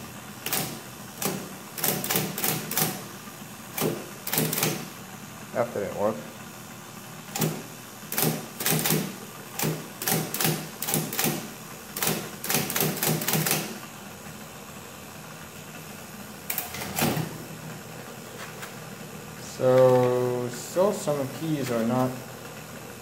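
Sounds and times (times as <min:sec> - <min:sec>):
typewriter motor hum: 0:00.2 - 0:05.0, 0:07.2 - 0:13.8, 0:16.5 - 0:17.5
typewriter keys clacking: 0:00.4 - 0:03.0, 0:12.0 - 0:13.6.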